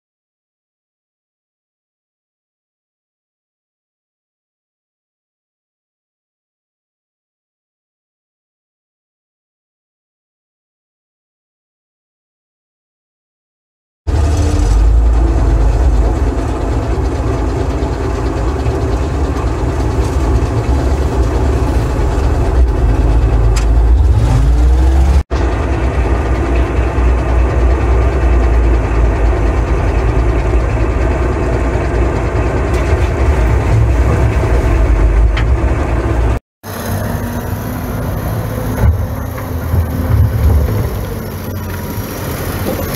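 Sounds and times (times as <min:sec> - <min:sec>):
diesel engine running: 0:14.1 - 0:42.9
rising engine whine: 0:14.1 - 0:42.9.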